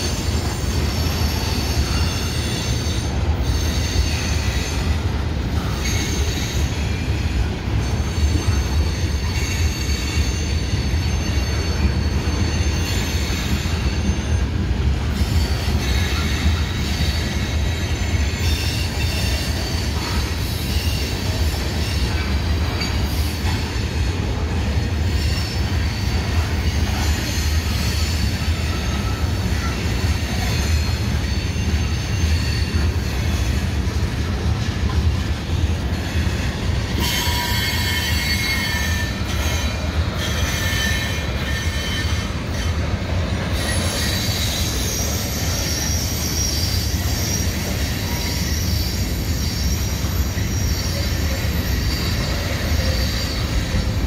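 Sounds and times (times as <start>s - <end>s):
train wheels rumbling on rail: 0.0s - 54.0s
high-pitched wheel squeal: 15.2s - 23.8s, 35.3s - 54.0s.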